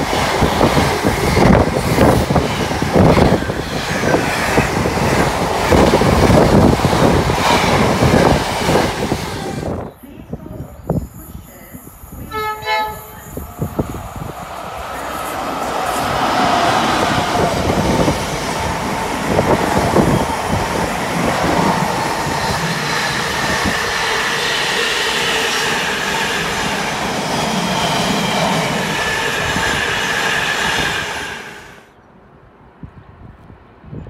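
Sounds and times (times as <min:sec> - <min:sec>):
freight train rumbling on rails: 0:00.0 - 0:32.0
faint rail squeal: 0:10.9 - 0:17.5.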